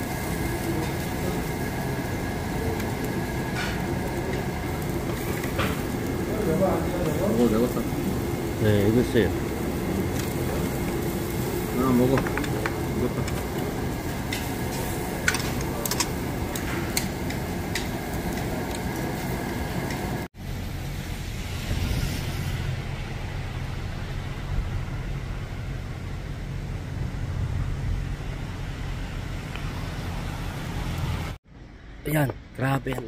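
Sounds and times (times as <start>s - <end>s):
restaurant table noise: 0.0s - 21.0s
low outdoor rumble: 0.0s - 33.0s
metal utensils clinking: 14.2s - 18.8s.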